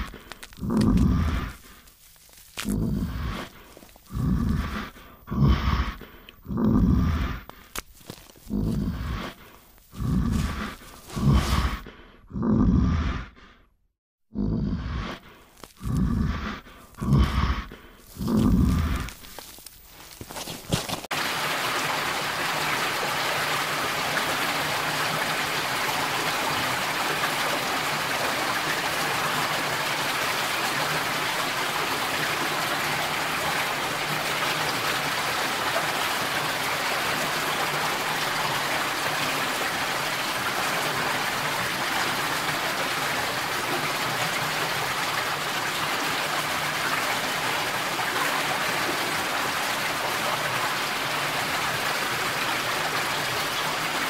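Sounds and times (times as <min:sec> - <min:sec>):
flowing water rushing: 0:00.0 - 0:06.0, 0:20.2 - 0:54.0.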